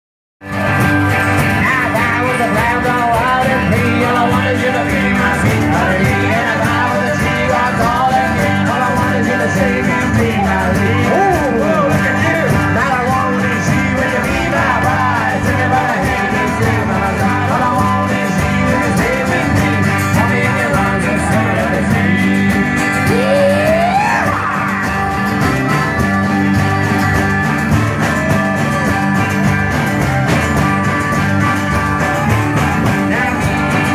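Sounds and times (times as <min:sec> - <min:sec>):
live band playing amplified music: 0:00.4 - 0:33.9
person singing: 0:01.4 - 0:25.1.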